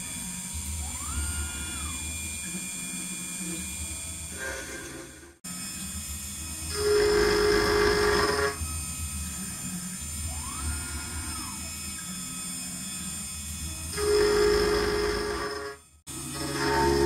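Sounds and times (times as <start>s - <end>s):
high-pitched metal cutting tone: 0.0s - 17.0s
machine running: 0.0s - 17.0s
spindle whine: 6.6s - 12.2s, 13.2s - 17.0s.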